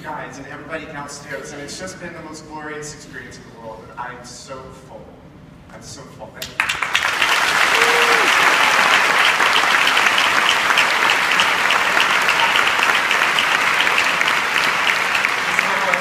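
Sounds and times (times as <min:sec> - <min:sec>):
audience applauding: 0:06.5 - 0:16.0.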